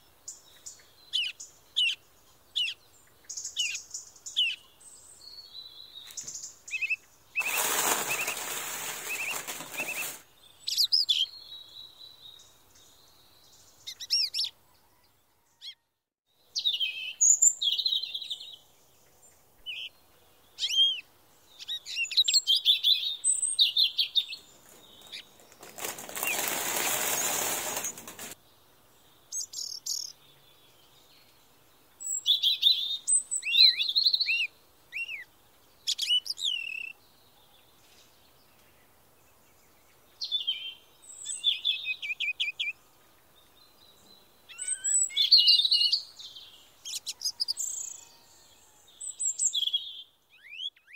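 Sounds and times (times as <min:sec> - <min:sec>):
small birds chirping: 0:00.0 - 0:50.9
loud hissing noise: 0:26.3 - 0:28.4.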